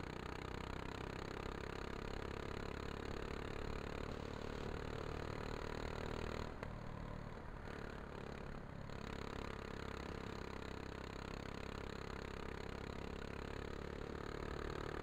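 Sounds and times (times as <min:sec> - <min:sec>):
go-kart engine running: 0:00.0 - 0:15.0.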